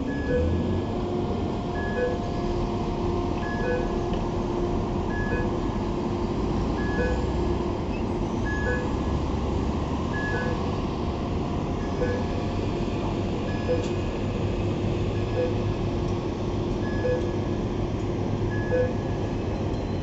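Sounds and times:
reversing alarm beeping: 0.0 - 0.9, 1.8 - 2.4, 3.4 - 4.0, 5.1 - 5.6, 6.8 - 9.2, 10.1 - 10.7, 11.8 - 12.5, 13.4 - 14.0, 15.2 - 15.7, 16.8 - 17.5, 18.5 - 20.0
heavy engines rumbling: 0.0 - 20.0.

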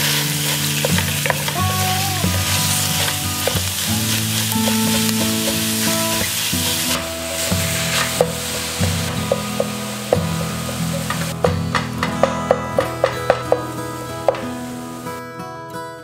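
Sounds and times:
meat sizzling in a pan: 0.0 - 11.4
background music: 0.0 - 15.6
sharp knocks: 8.2 - 14.6.

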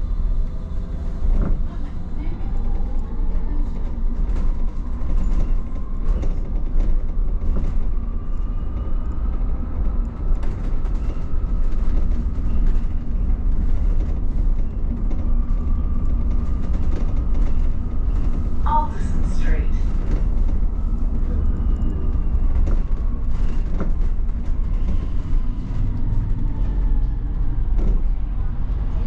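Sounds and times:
bus ride rumble: 0.0 - 29.0
body rattles: 19.8 - 28.8.

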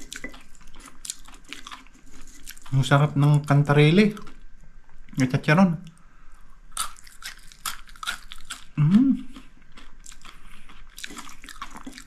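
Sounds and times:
crunchy food chewing: 0.0 - 4.6, 6.6 - 12.0
person humming mm: 8.8 - 9.4.

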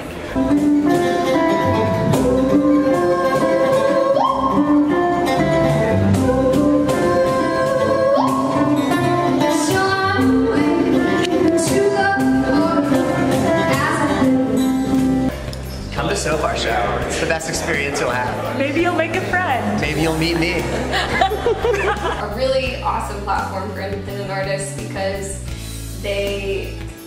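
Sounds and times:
acoustic guitar strumming: 0.0 - 24.0
woman singing: 2.1 - 5.4, 6.1 - 15.1.

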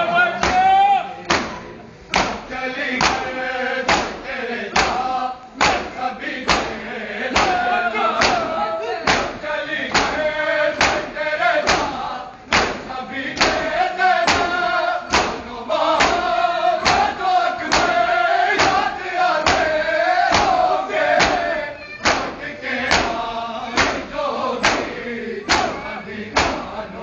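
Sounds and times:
men chanting in unison: 2.2 - 27.0
hands striking chests: 9.1 - 10.2.

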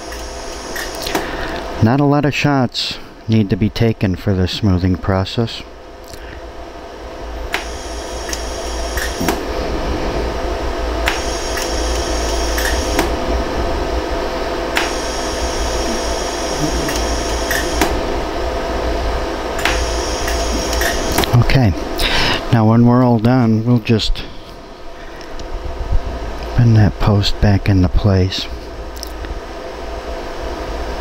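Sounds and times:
laser welder sharp clicks: 0.0 - 1.3, 7.5 - 9.4, 11.0 - 13.2, 14.7 - 18.0, 19.6 - 21.4
machine steady hum: 0.0 - 31.0.

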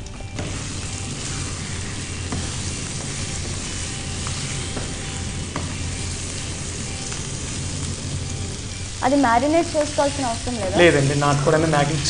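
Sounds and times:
chicken sizzling in hot oil: 0.0 - 12.0
spatula tapping a pan: 1.4 - 7.6.

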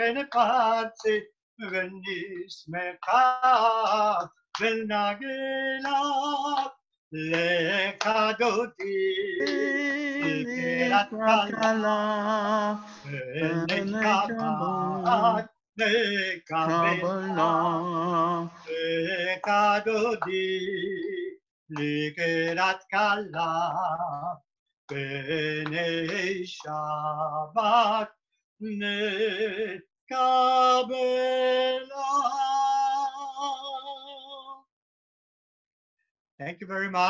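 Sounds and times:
man singing solo with vibrato: 0.0 - 28.1.

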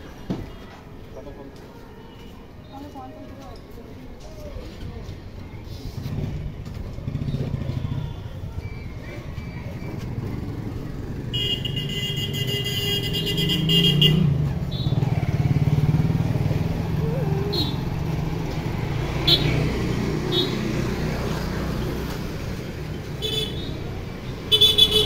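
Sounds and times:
motorcycle engine running: 6.0 - 8.6, 9.2 - 11.8, 13.6 - 22.6
vehicle horn: 11.3 - 15.0, 19.2 - 19.6, 20.3 - 20.6, 23.2 - 23.7, 24.5 - 25.0.

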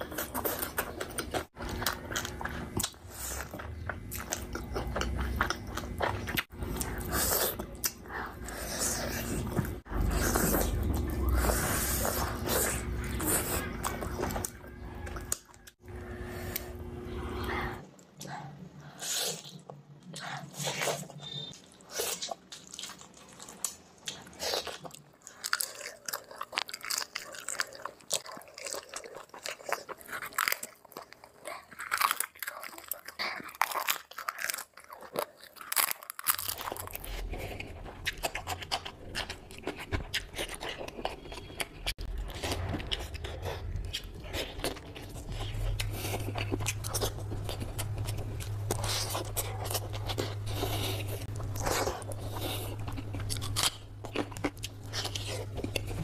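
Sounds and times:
steady low hum: 0.0 - 21.5, 42.0 - 56.0
crunching and chewing food: 0.0 - 56.0.

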